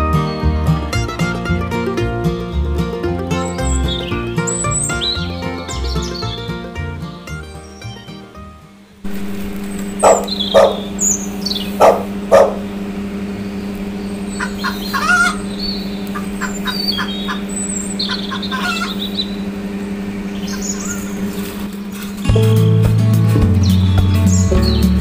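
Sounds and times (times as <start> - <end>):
steady low hum: 0.0 - 25.0
loud sharp bird calls: 9.1 - 19.6, 20.2 - 21.8
high bird chirps and whistles: 9.7 - 12.6, 13.5 - 19.4, 20.3 - 21.6, 23.6 - 24.9.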